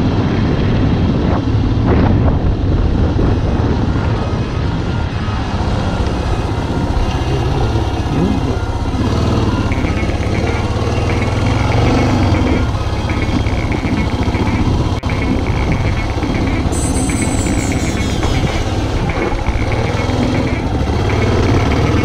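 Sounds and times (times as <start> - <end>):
wind noise: 0.0 - 22.0
motorcycle engine running: 6.4 - 22.0.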